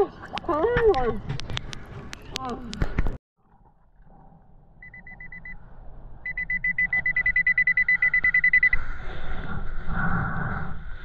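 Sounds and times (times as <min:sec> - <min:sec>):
metal detector beeping: 0:04.8 - 0:05.6, 0:06.3 - 0:08.8.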